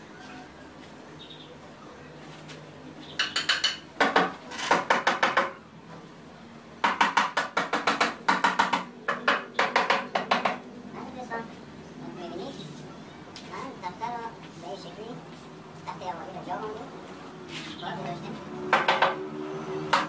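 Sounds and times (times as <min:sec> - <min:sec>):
hammer tapping nails: 0:03.2 - 0:05.6, 0:06.8 - 0:10.6, 0:18.7 - 0:19.2.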